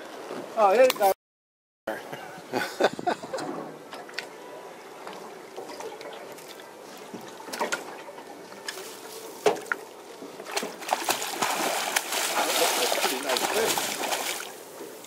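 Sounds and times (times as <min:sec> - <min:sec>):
water sloshing against boat hull: 0:03.2 - 0:15.0
fish thrashing and splashing: 0:10.4 - 0:14.7.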